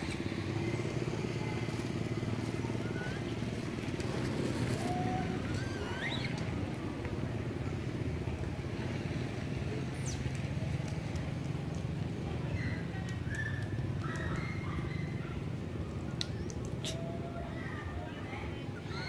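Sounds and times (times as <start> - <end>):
motor engine running: 0.0 - 12.9
short high squeaks: 4.4 - 6.5.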